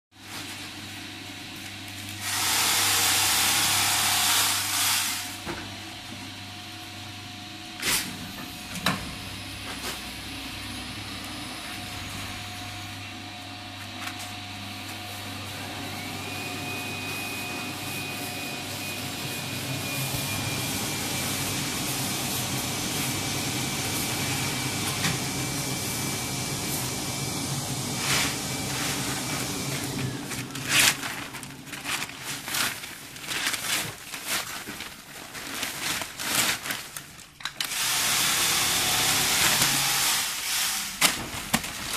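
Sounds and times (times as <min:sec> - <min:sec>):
low electric hum: 0:05.2 - 0:27.1, 0:28.0 - 0:37.6
machine whine rising: 0:08.3 - 0:32.1.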